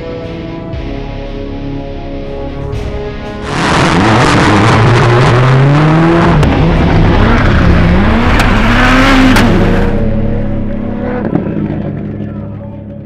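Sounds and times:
race car engine revving hard: 3.4s - 12.3s.

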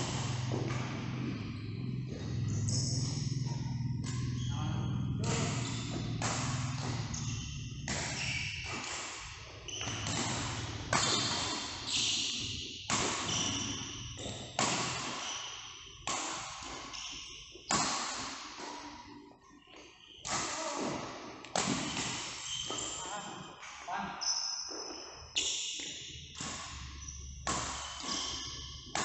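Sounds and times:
badminton racket hitting shuttlecock: 0.0s - 1.3s, 2.6s - 4.5s, 5.1s - 15.3s, 16.0s - 17.0s, 25.8s - 29.0s.

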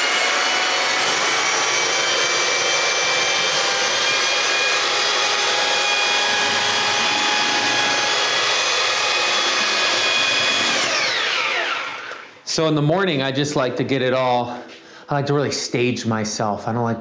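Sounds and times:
electric drill mixing plaster: 0.0s - 12.4s.

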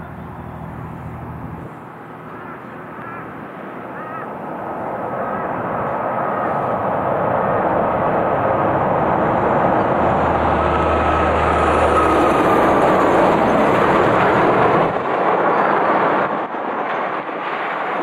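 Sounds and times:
faint high whine: 0.0s - 6.8s
diesel locomotive engines running: 0.0s - 18.0s.

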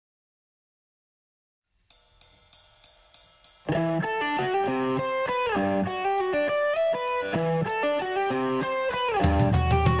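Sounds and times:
hi-hat ticks: 1.9s - 9.2s
electric guitar riff: 3.7s - 10.0s.

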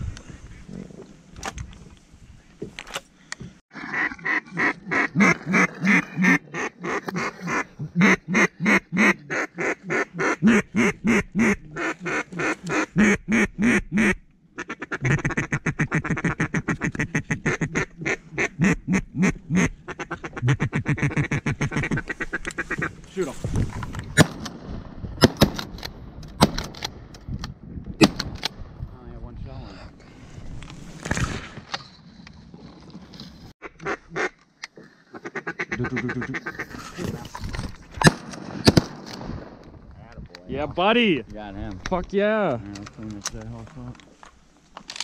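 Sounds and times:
duck call quacks: 3.9s - 22.9s.

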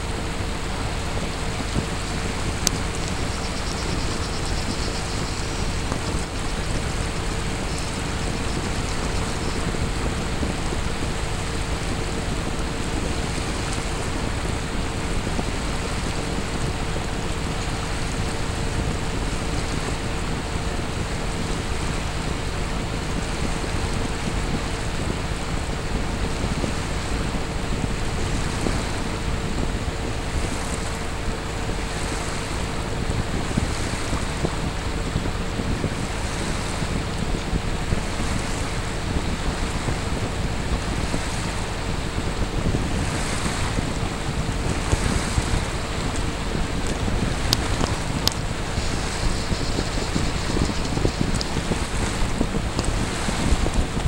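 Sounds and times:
constant hum: 0.0s - 54.0s
moving sea water: 0.0s - 54.0s
wind rushing: 25.7s - 54.0s.

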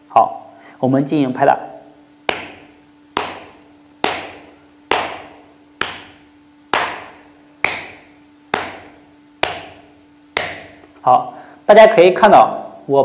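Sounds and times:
palm slapping skin: 2.2s - 10.8s.

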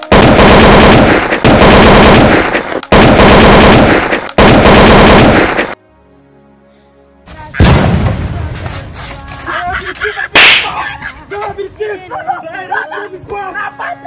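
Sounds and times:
machine-gun fire bursts: 0.0s - 5.8s.

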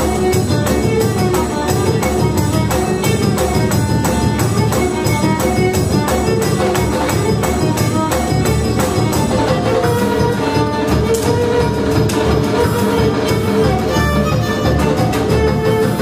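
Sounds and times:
drum kit beat: 0.0s - 16.0s
plucked double bass: 0.0s - 16.0s
violin melody: 0.0s - 16.0s.

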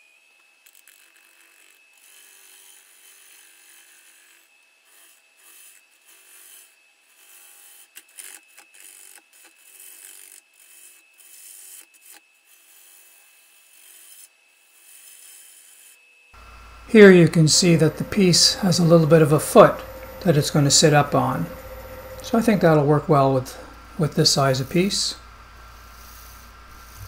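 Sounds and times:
lathe tool shearing wood shavings: 0.8s - 6.6s, 14.8s - 27.0s
thin high tone: 16.4s - 27.0s.

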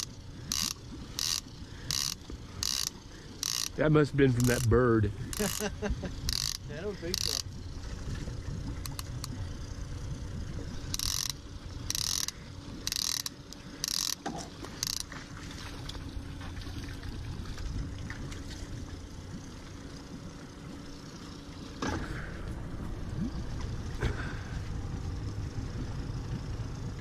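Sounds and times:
fishing reel ratcheting: 0.0s - 7.6s, 8.7s - 9.7s, 10.6s - 15.2s
outboard motor hum: 0.0s - 27.0s.

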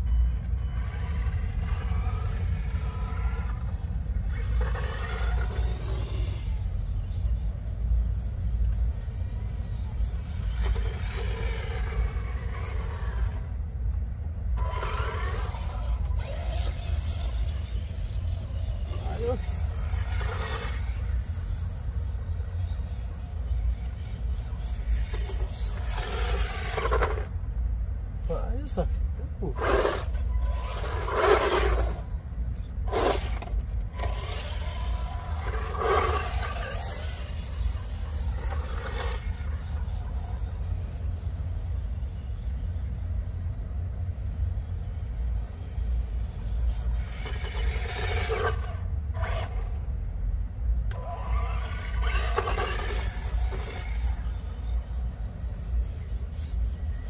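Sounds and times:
steady low rumble: 0.0s - 57.0s
tyres on asphalt: 0.0s - 57.0s
electric motor whining: 0.7s - 13.6s, 32.9s - 41.2s, 50.9s - 56.7s.

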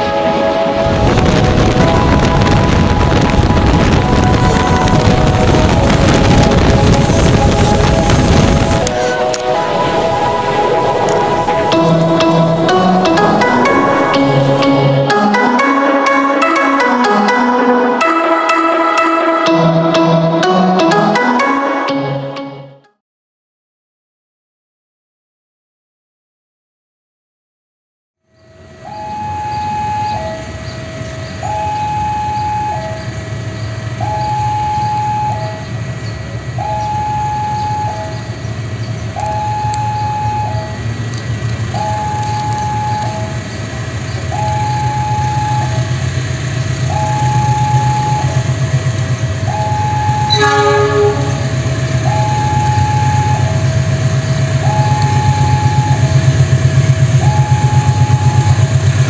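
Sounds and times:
locomotive horn toot: 0.0s - 10.1s, 49.5s - 53.6s
diesel locomotive engine rumble: 0.0s - 21.6s, 28.6s - 59.0s
level-crossing alarm ding-dong: 0.4s - 22.8s, 28.4s - 33.2s, 33.9s - 35.7s, 36.5s - 38.4s, 39.2s - 40.9s, 41.7s - 43.4s, 44.2s - 46.0s, 46.8s - 48.7s, 49.3s - 58.9s.

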